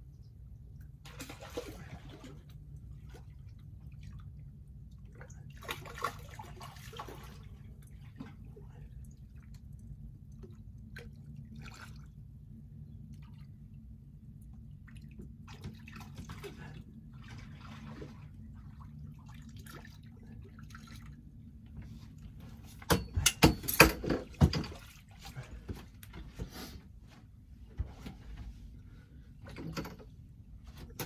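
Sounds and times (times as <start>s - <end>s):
low steady rumble: 0.0s - 31.0s
water dripping and splashing: 5.0s - 12.1s
loud sharp splashes and knocks: 22.8s - 25.1s.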